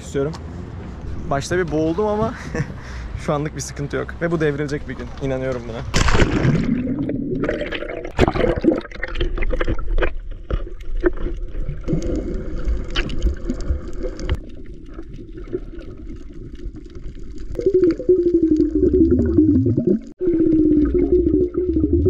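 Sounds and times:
underwater bubbling: 6.0 - 22.0.

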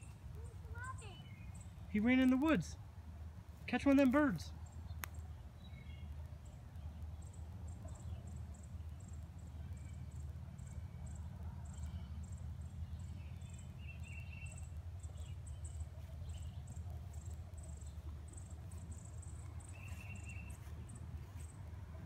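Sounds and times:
insects chirping: 7.2 - 21.6.

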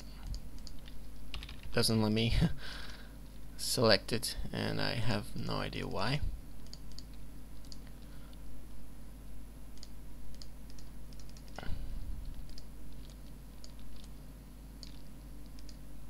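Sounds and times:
steady low hum: 0.0 - 16.0
mouse and keyboard clicks: 12.3 - 14.2, 14.8 - 15.8.

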